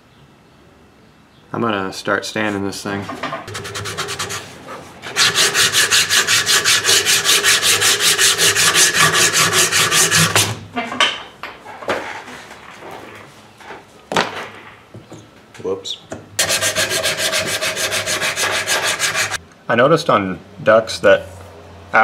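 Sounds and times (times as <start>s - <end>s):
sandpaper rasping on wood: 3.5s - 10.6s, 16.4s - 19.4s.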